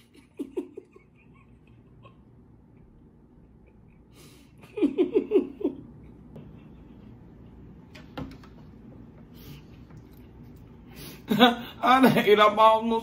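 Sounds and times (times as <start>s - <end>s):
woman laughing: 0.0s - 7.1s.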